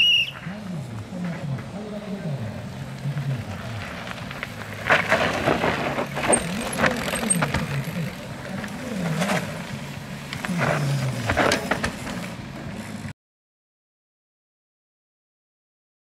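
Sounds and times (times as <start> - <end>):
bikes clattering over roots and rocks: 2.7 - 13.1.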